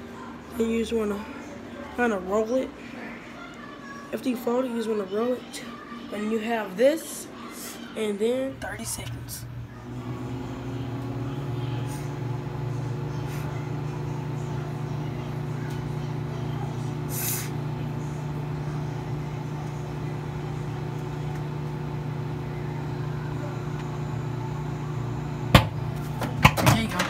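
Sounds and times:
microwave oven humming: 0:08.2 - 0:27.0
brief hiss: 0:17.1 - 0:17.6.

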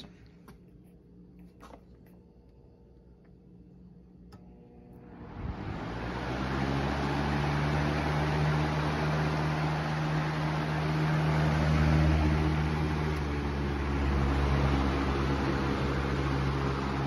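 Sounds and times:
box fan motor humming: 0:01.2 - 0:17.0
rush of air from fan: 0:05.0 - 0:17.0.

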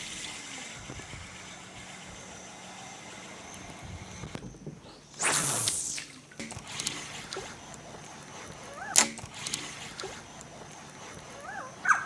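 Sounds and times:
lure splashing on water: 0:05.1 - 0:11.4.

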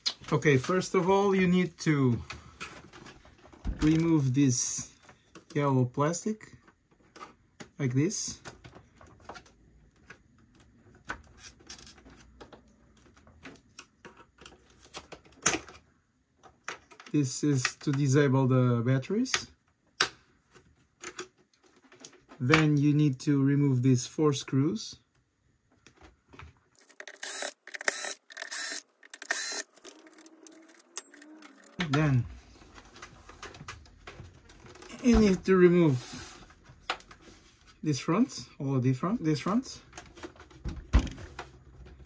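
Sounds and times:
electric screwdriver whirring: 0:27.0 - 0:31.8.

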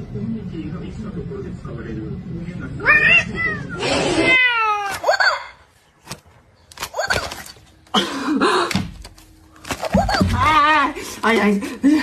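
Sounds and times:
cat yowling: 0:02.8 - 0:05.0.

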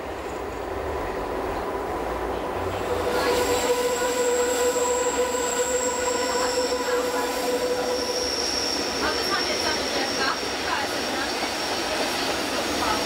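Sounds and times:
train running noise: 0:00.0 - 0:13.0
train wheels squealing: 0:03.1 - 0:13.0.

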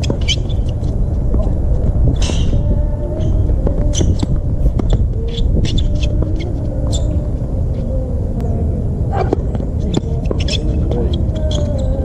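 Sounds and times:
shoe scuffs and squeaks: 0:00.0 - 0:00.9
low rumble: 0:00.0 - 0:12.0.

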